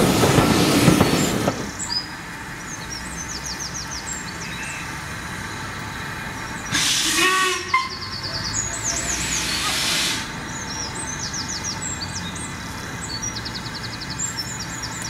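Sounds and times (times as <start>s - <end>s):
burst of hiss: 0.0s - 1.8s, 6.7s - 7.6s, 8.9s - 10.4s
passing train rumble: 0.0s - 15.0s.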